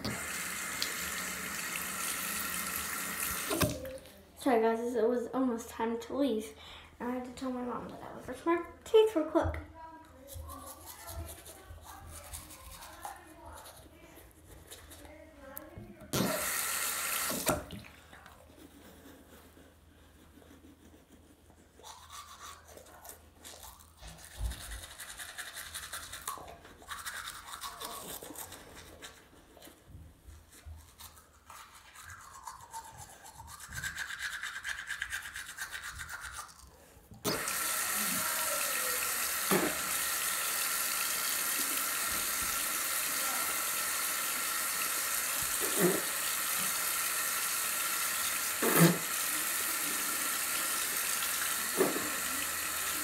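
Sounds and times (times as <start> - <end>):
tap water running: 0.0 - 4.0, 16.1 - 18.0, 37.2 - 53.0
toothbrush scrubbing teeth: 0.0 - 4.2, 10.1 - 53.0.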